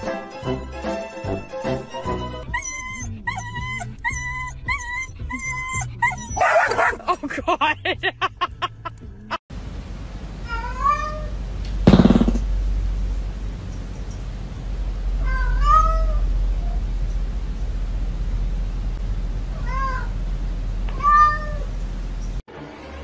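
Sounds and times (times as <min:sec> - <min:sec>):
dog whining: 0:02.4 - 0:06.8
dog yipping: 0:02.4 - 0:07.0
cat meowing: 0:10.4 - 0:11.4, 0:15.2 - 0:16.3, 0:19.5 - 0:20.1, 0:20.9 - 0:21.7
short loud burst: 0:11.8 - 0:12.5.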